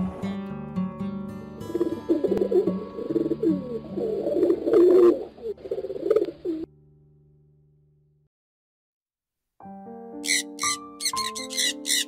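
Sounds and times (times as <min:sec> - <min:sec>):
faint background music: 0:00.0 - 0:06.7, 0:10.2 - 0:12.0
pigeons cooing: 0:01.7 - 0:06.7.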